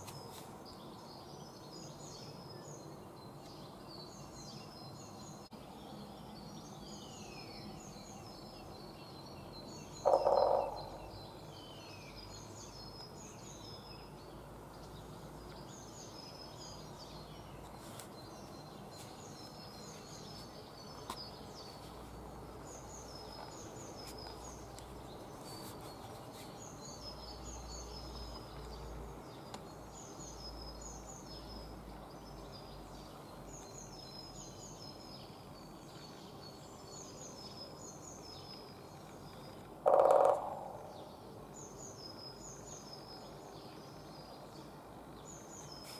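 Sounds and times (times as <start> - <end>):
songbirds chirping: 0.0 - 45.9
woodpecker drumming: 10.0 - 11.1, 39.8 - 40.9.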